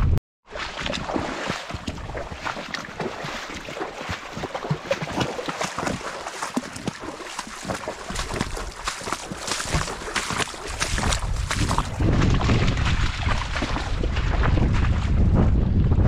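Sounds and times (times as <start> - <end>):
footsteps crunching on trail: 1.7 - 13.9.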